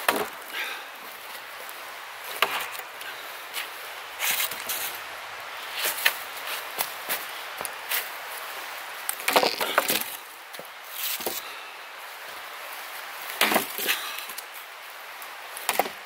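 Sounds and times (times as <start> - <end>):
wood cracking and splintering: 0.0 - 0.5, 9.0 - 10.2, 13.4 - 14.4, 15.6 - 16.0.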